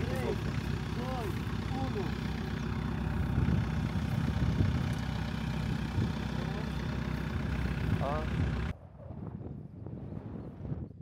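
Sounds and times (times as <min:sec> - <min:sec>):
vehicle engine idling: 0:00.0 - 0:08.8.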